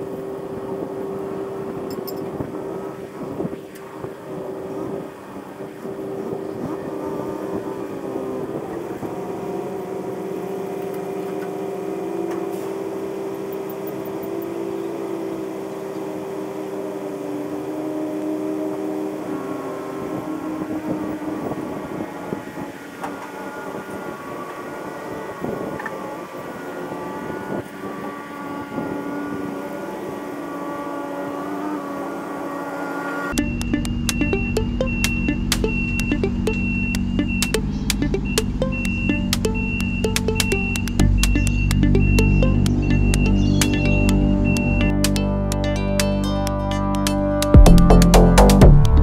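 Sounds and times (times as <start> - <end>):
excavator diesel engine running: 33.3 - 49.0.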